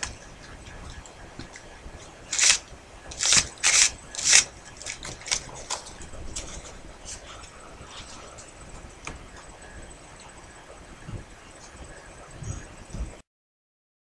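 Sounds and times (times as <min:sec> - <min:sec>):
paper rustling and ticking: 0:00.0 - 0:09.4
paper scraping on paper: 0:02.3 - 0:08.4.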